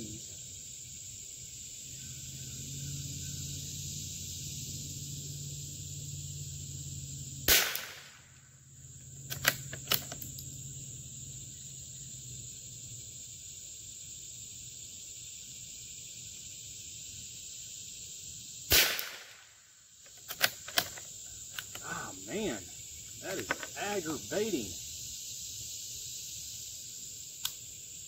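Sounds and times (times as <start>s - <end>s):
rifle shots: 7.5s - 8.2s, 18.7s - 19.5s
rifle bolt clicks: 9.3s - 10.3s.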